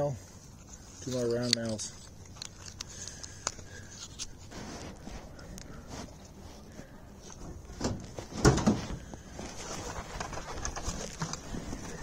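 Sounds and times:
handheld phone clicks and scraping: 0:00.5 - 0:05.8.

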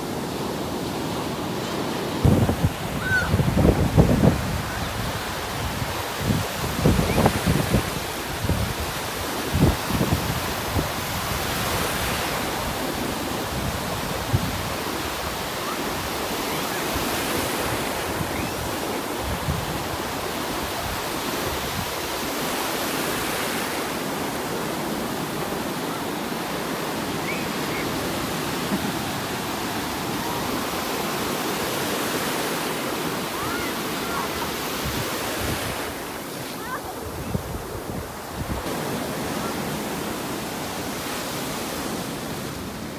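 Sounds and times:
waves breaking: 0:00.0 - 0:42.9
wind buffeting microphone: 0:02.2 - 0:11.5.

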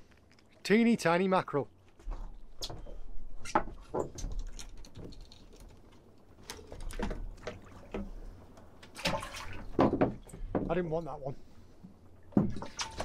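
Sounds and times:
low rumble of wind and water: 0:00.0 - 0:13.0
light taps and knocks on boat deck: 0:09.7 - 0:10.9.

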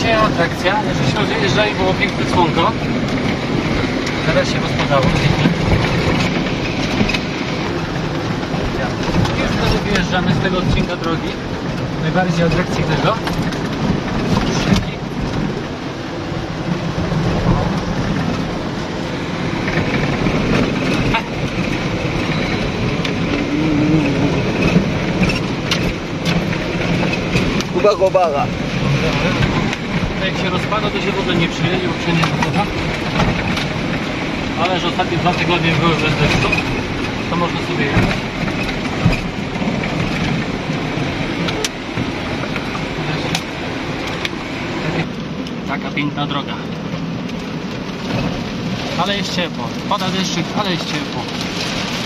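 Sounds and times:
car engine running: 0:00.0 - 0:52.0
rain on windscreen: 0:00.0 - 0:52.0
windscreen wipers sweeping: 0:00.0 - 0:52.0.

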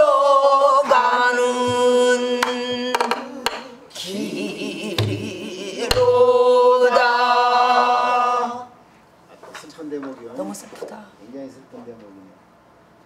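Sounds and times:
barrel drum thumps and stick strokes: 0:01.6 - 0:03.6, 0:05.0 - 0:05.3.

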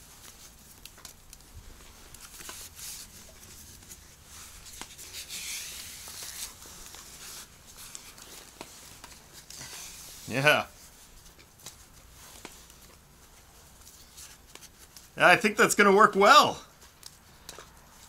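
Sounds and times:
strap rustling and scraping: 0:00.0 - 0:15.2
strap hissing rub: 0:02.2 - 0:08.2, 0:09.4 - 0:10.4.

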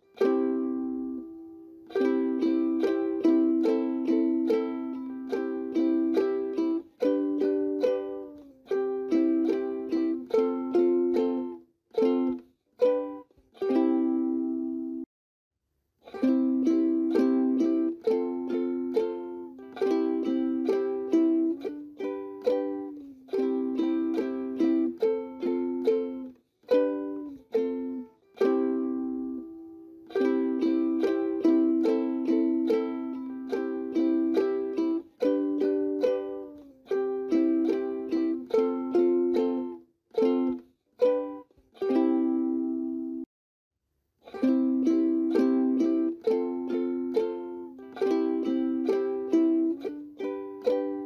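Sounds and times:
plucked string chords: 0:00.0 - 0:15.0, 0:16.0 - 0:43.3, 0:44.2 - 0:51.0.

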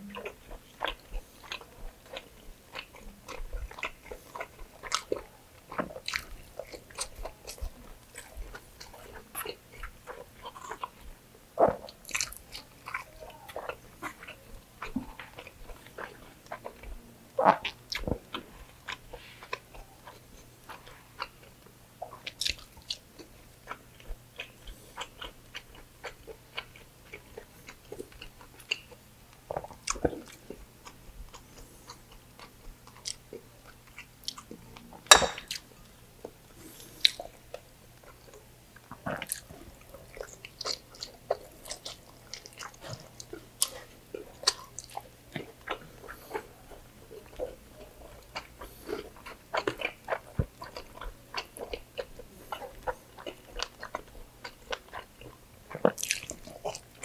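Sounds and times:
wet chewing and biting: 0:00.1 - 0:11.0, 0:11.6 - 0:34.5, 0:37.0 - 0:57.0.

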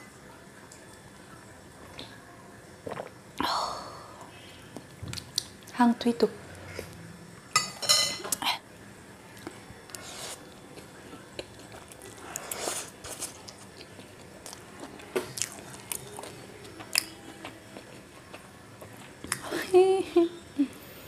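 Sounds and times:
noodles slurped and chewed: 0:09.9 - 0:14.6.

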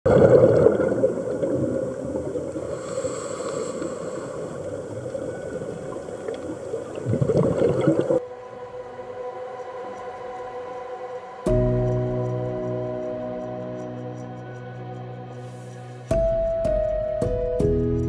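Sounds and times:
underwater bubbles gurgling: 0:00.1 - 0:08.2.

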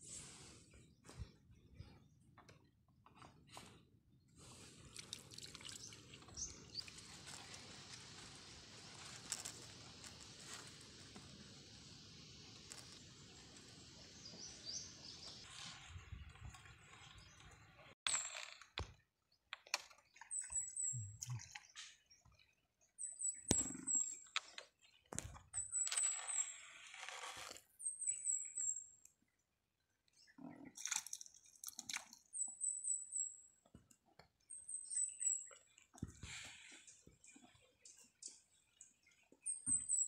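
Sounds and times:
small bird chirping: 0:20.1 - 0:22.0, 0:27.8 - 0:29.0, 0:34.4 - 0:40.0.

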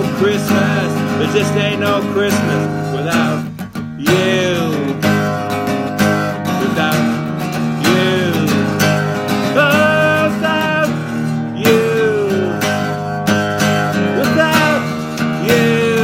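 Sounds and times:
acoustic guitar strumming: 0:00.0 - 0:16.0
man singing: 0:00.0 - 0:16.0.

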